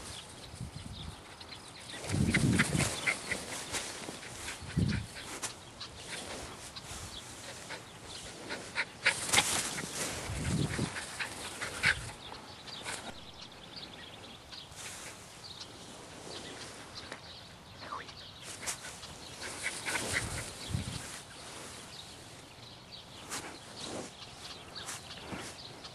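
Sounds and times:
rustling and crackling grass: 0.0s - 25.9s
dog panting: 7.4s - 13.1s, 18.7s - 20.7s.

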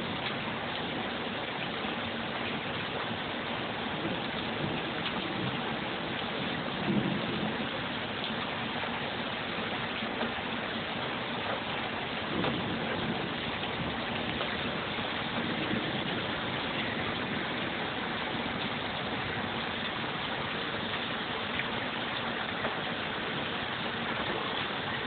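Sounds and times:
steady rain hiss: 0.0s - 25.0s
low thunder rumble: 3.9s - 7.8s, 12.1s - 21.2s.

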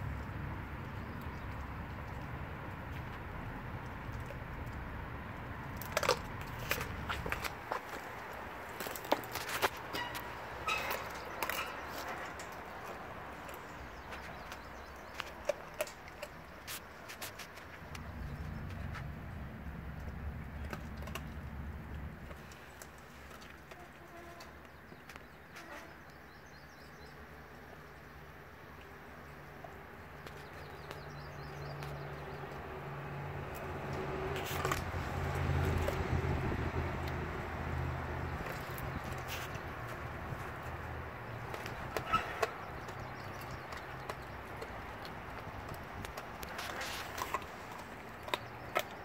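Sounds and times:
dog crunching frozen fish: 5.5s - 18.8s, 33.4s - 49.0s
birds chirping faintly: 6.5s - 19.2s
low engine hum: 17.7s - 22.7s, 29.6s - 49.0s.

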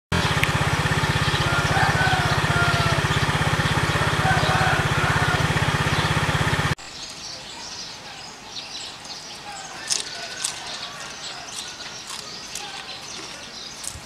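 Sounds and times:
engine running with low throb: 0.1s - 6.8s.

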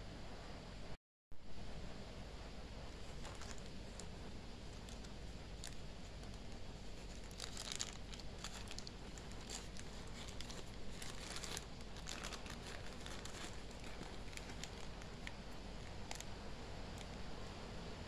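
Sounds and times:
plastic mailer bag crinkling: 2.9s - 16.3s
scissors cutting plastic: 4.8s - 16.2s.

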